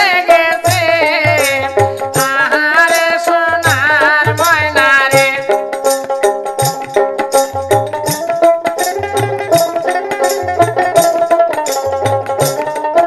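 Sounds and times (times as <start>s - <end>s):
person singing: 0.0s - 5.7s
jingling hand percussion: 0.0s - 13.0s
held instrumental melody: 4.4s - 13.0s.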